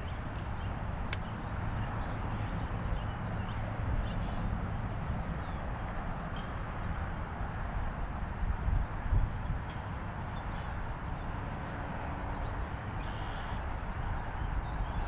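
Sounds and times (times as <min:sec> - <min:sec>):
wind buffeting microphone: 0:00.0 - 0:15.0
sharp click: 0:01.1 - 0:01.3.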